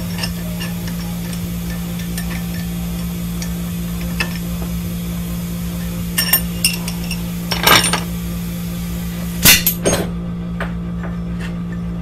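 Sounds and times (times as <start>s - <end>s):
metal clinks: 6.2s - 8.0s.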